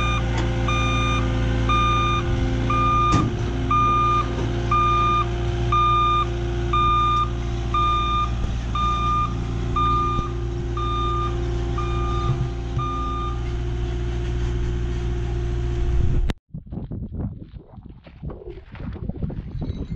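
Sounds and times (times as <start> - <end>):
backup alarm beeping: 0.0 - 13.8
diesel engine running: 0.0 - 16.3.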